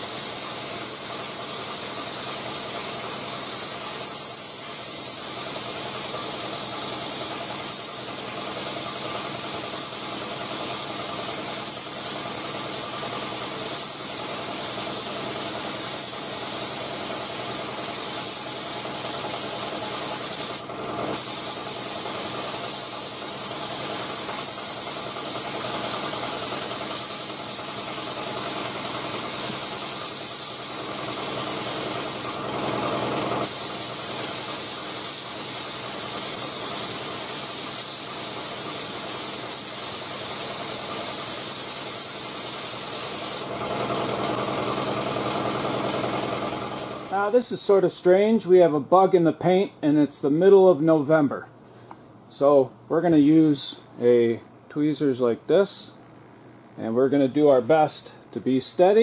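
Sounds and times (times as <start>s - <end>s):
spray gun hissing: 0.0s - 32.5s, 33.4s - 43.8s
mechanical hum: 0.0s - 59.0s.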